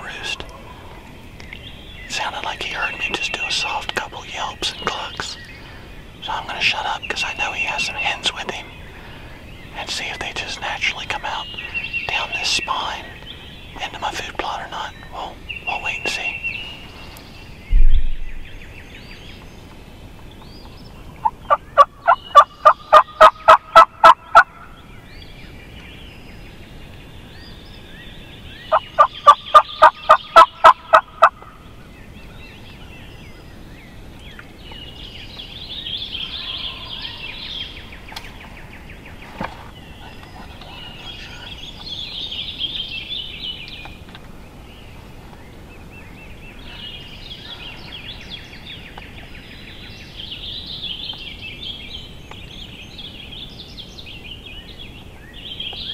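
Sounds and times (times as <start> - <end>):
turkey yelping: 21.2 - 24.5, 28.7 - 31.4.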